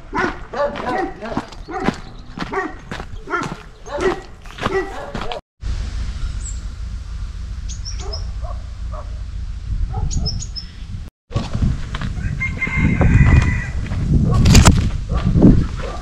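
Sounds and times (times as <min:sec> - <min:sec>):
small birds chirping: 0:00.9 - 0:05.1, 0:07.6 - 0:08.5, 0:10.0 - 0:11.0
wind rumble on microphone: 0:07.7 - 0:16.0
rooster crowing: 0:12.2 - 0:13.8.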